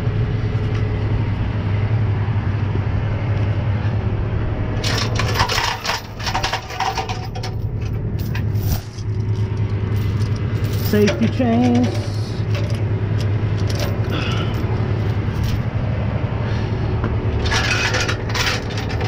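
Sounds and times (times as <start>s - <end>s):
truck engine idling: 0.0s - 19.0s
tow chains clanking: 4.8s - 15.8s, 17.4s - 19.0s.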